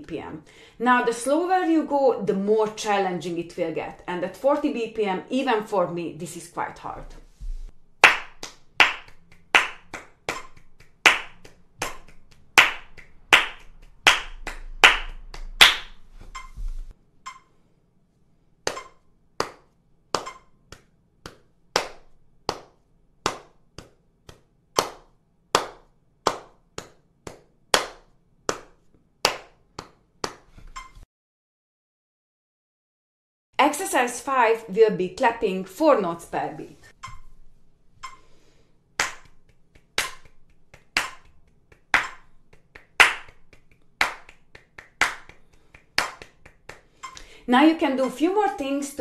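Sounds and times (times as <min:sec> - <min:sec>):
hand claps: 0:08.0 - 0:16.5, 0:18.7 - 0:30.5, 0:39.0 - 0:47.3.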